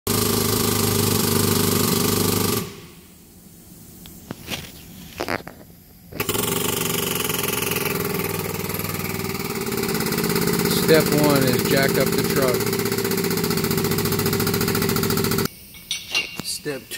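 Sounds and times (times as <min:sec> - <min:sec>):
air-driven pump buzzing: 0:00.1 - 0:15.9.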